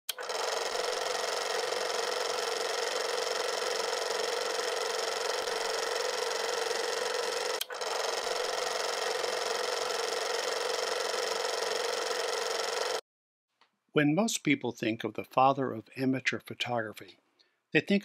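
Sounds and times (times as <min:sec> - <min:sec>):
film projector clattering: 0:00.1 - 0:13.0.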